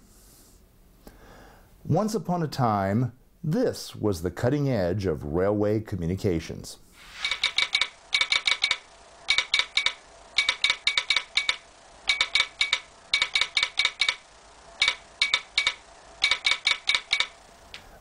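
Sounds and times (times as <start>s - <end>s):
telegraph sounder clicking: 7.3s - 17.8s.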